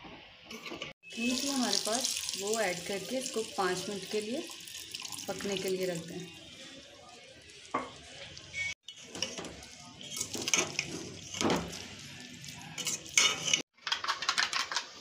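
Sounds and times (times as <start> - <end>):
food sizzling: 1.0 - 13.7
spoon scraping metal pot: 8.9 - 13.7.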